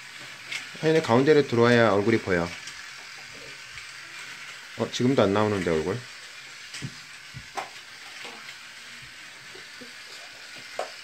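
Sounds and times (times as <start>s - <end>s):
toy train rattling whir: 0.0s - 11.0s.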